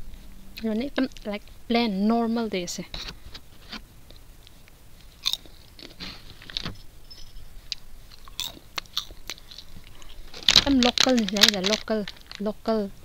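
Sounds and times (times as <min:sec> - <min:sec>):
popcorn crunching: 0:05.0 - 0:06.5, 0:07.7 - 0:12.6.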